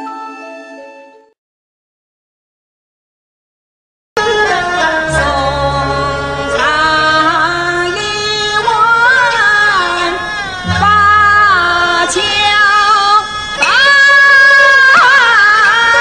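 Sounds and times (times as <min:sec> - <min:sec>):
instrumental accompaniment: 0:04.2 - 0:16.0
woman singing opera: 0:04.2 - 0:16.0.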